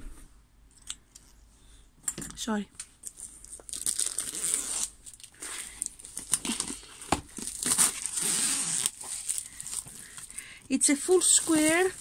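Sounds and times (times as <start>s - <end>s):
cardboard box rustling: 10.9s - 12.0s.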